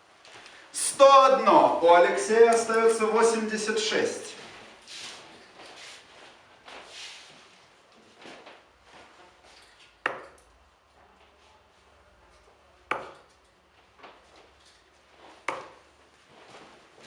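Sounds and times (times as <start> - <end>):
darts hitting dartboard: 10.1 - 10.4, 12.9 - 13.3, 15.5 - 15.8.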